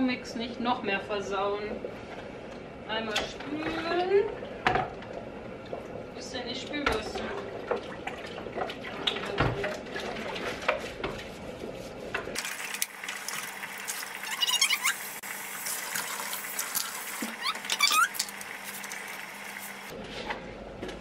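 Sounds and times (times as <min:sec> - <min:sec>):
kitchen tap running: 0:12.4 - 0:20.0
short rising squeaks: 0:14.2 - 0:15.2, 0:17.3 - 0:18.3.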